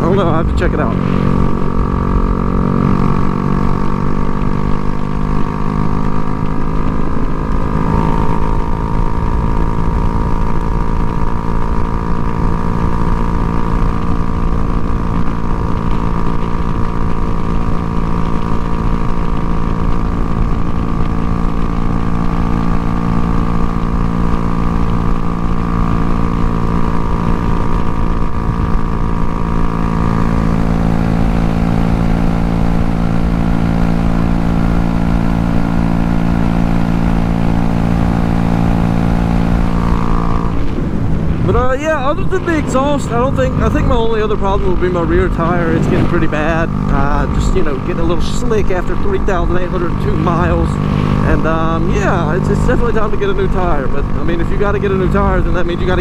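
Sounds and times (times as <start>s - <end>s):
motorcycle engine running: 0.0s - 56.0s
wind rumble on microphone: 37.7s - 56.0s.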